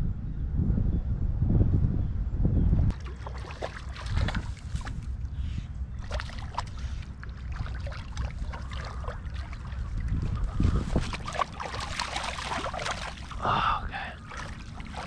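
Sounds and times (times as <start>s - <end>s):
wind rumble on microphone: 0.0s - 15.0s
fish splashing at water surface: 2.9s - 5.0s, 6.0s - 13.4s, 14.2s - 15.0s.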